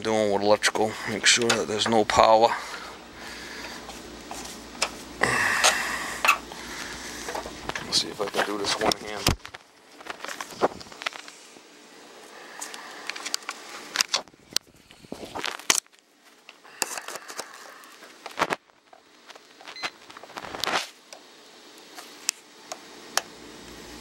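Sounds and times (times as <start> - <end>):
handling clicks and scraping: 0.3 - 2.8, 3.6 - 11.4.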